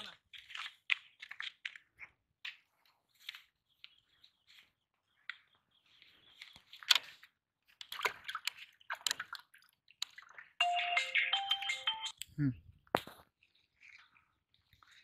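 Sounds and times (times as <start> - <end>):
water sloshing in a plastic bucket: 0.0 - 2.6, 5.3 - 10.6.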